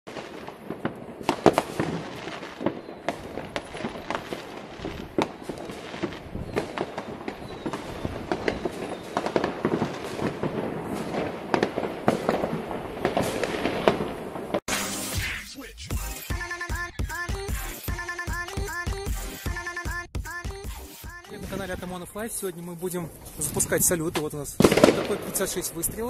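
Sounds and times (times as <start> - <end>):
fireworks bangs and crackles: 0.1 - 15.0, 21.5 - 26.0.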